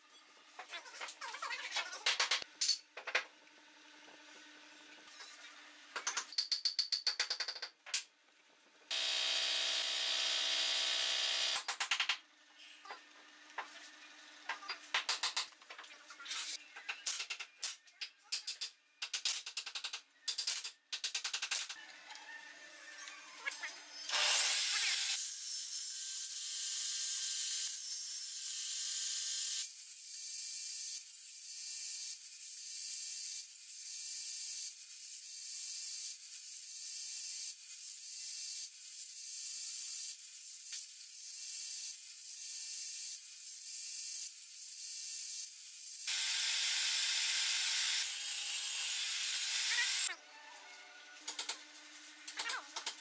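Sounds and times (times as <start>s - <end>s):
table saw running: 8.9s - 11.6s, 46.1s - 50.1s
table saw cutting wood: 8.9s - 11.7s, 22.6s - 29.8s, 36.6s - 50.2s.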